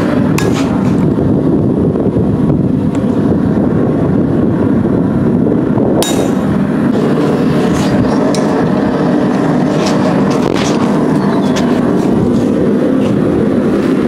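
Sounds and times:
forge roaring: 0.0s - 14.0s
sharp metallic clink: 6.0s - 6.5s.

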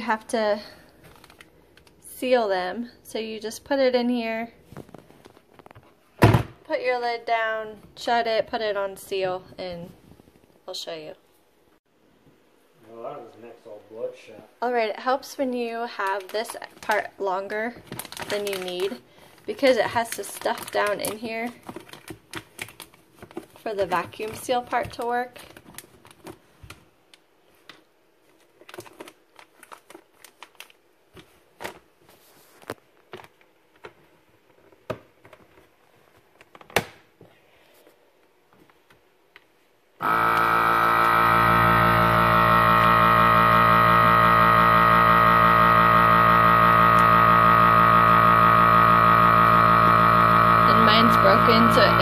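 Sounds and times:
vacuum pump humming: 40.0s - 52.0s.

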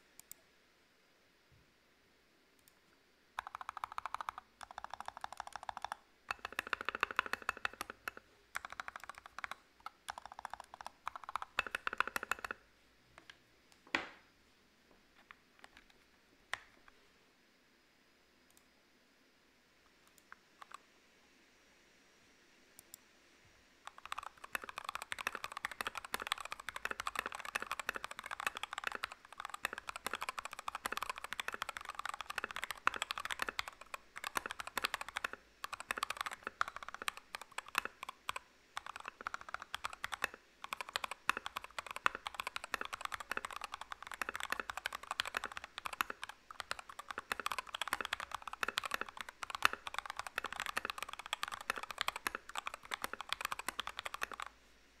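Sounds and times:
mechanical keyboard typing: 3.4s - 12.6s, 23.9s - 54.5s.

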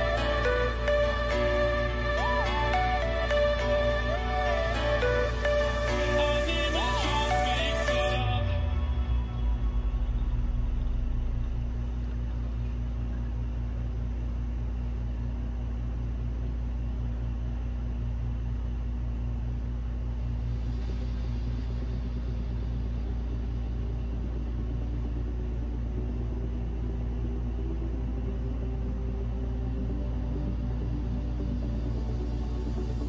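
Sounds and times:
steady low hum with tones: 0.0s - 33.0s.

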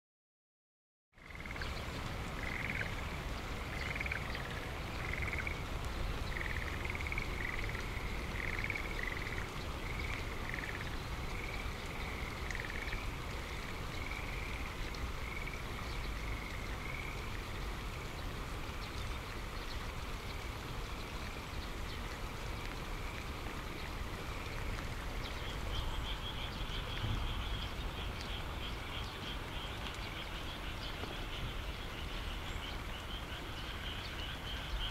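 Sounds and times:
frogs croaking: 1.2s - 34.9s
rain falling: 1.2s - 34.9s.

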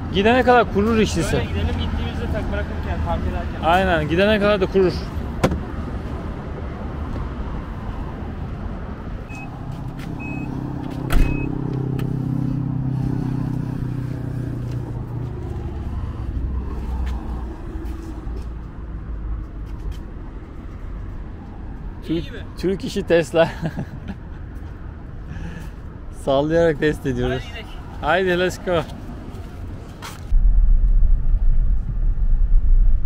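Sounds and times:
low engine hum: 5.0s - 22.0s, 29.0s - 33.0s
sharp thump: 5.4s - 5.7s, 11.0s - 11.4s
short high beeps: 9.3s - 9.6s, 10.2s - 10.6s.

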